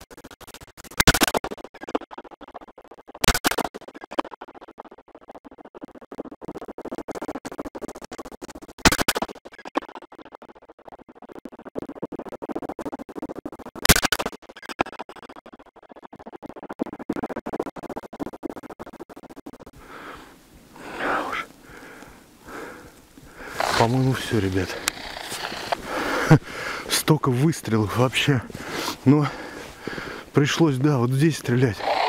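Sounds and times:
footsteps crunching in snow: 0:23.1 - 0:26.8.

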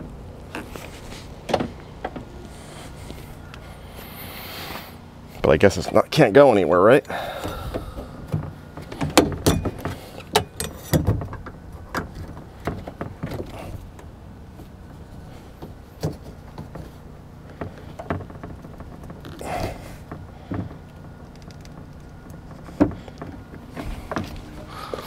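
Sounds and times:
plastic and rubber clicks and scraping: 0:15.6 - 0:25.0.

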